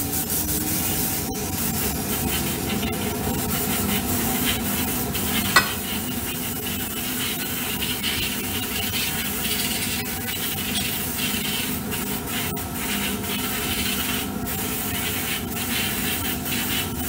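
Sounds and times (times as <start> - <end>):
airbrush hissing: 3.6 - 9.4.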